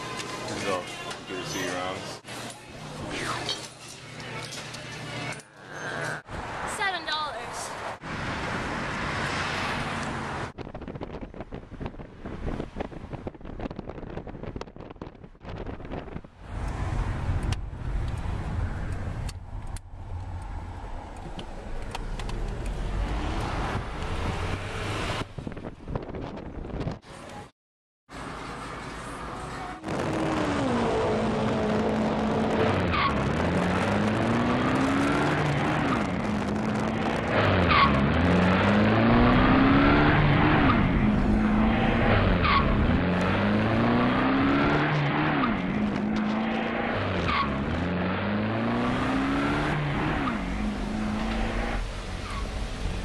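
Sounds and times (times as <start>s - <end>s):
car engine revving: 29.8s - 53.0s.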